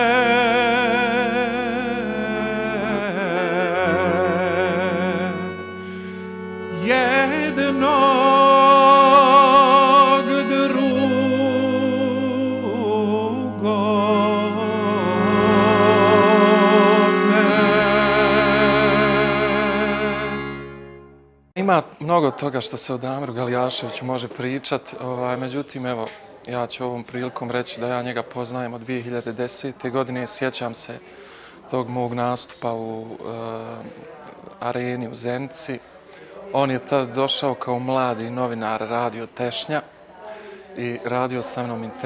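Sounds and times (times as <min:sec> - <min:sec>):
man singing with vibrato: 0:00.0 - 0:20.8
accordion chords: 0:00.0 - 0:21.5.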